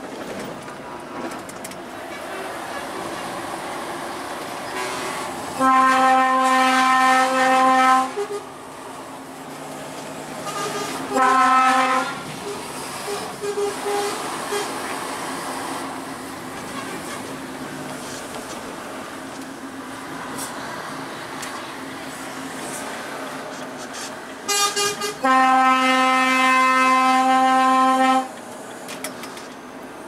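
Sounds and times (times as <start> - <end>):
moving lorry cab noise: 0.0 - 30.0
truck air horn blasts: 4.7 - 8.5, 10.4 - 14.8, 24.5 - 28.3.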